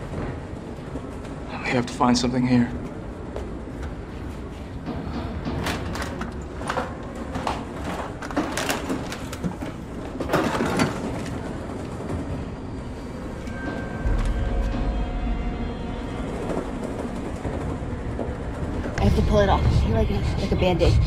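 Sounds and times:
sharp knocks and clatters: 4.7s - 11.5s
low rumble: 12.6s - 21.0s.

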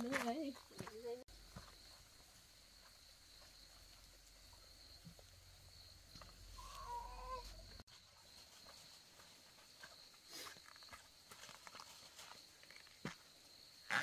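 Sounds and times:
faint outdoor background: 0.0s - 14.0s
chicken calling: 6.6s - 7.8s.

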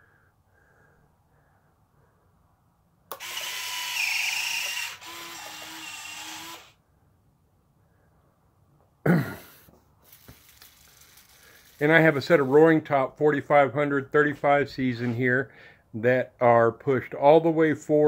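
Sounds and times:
small motorized mechanism whirring: 3.1s - 6.8s, 10.1s - 11.8s.

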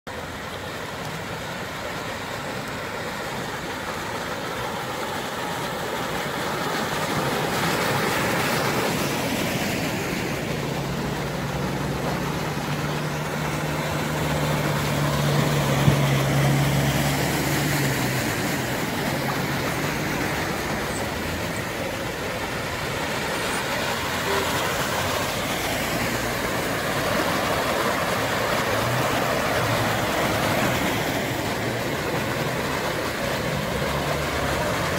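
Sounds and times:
car engines running: 0.1s - 34.9s
low engine hum: 0.1s - 34.9s
tyres splashing through floodwater: 0.1s - 34.9s.

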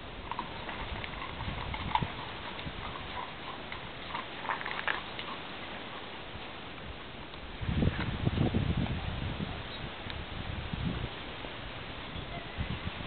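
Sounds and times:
horse hoofbeats: 0.0s - 7.0s.

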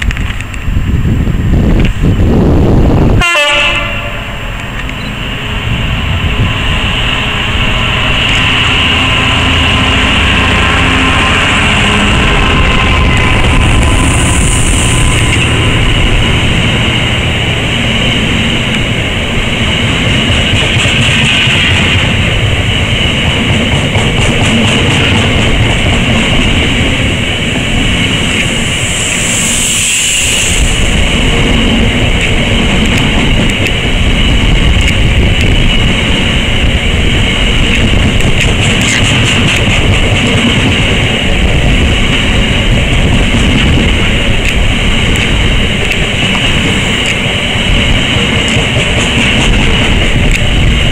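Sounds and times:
train wheels rumbling on rail: 0.0s - 50.9s
brief high hiss: 28.5s - 31.1s.

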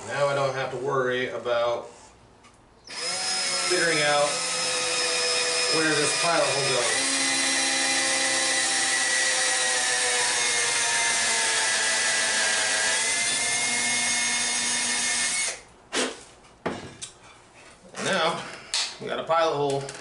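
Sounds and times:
cordless drill boring into wood: 2.9s - 15.6s.

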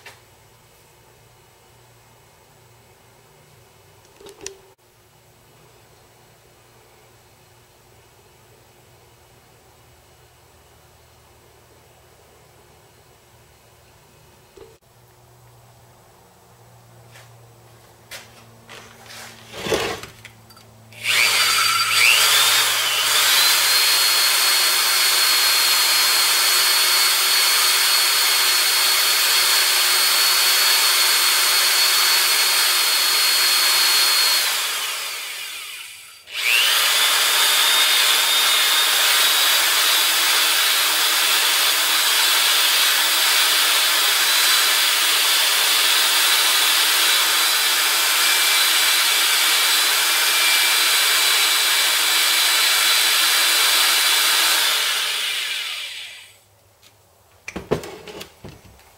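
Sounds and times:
heat gun fan whining: 18.1s - 56.4s
knocks of handling objects: 56.8s - 58.9s.

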